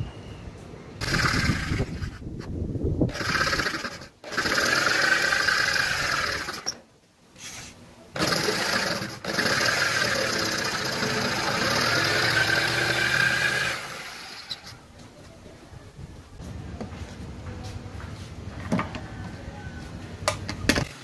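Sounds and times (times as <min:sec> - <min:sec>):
jigsaw cutting plywood: 0:01.0 - 0:02.2, 0:03.1 - 0:06.8, 0:08.2 - 0:14.7.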